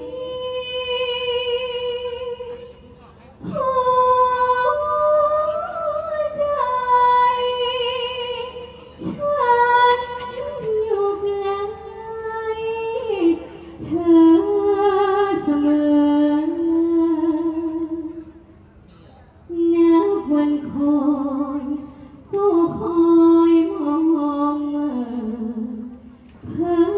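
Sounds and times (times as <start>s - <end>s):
high voice singing with vibrato: 0.0s - 2.8s
singer breathing: 13.4s - 13.8s, 21.8s - 22.3s.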